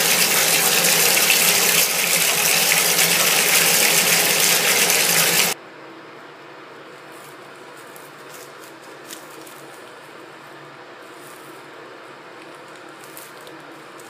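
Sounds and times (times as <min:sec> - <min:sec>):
water splashing into bathtub: 0:00.0 - 0:05.6.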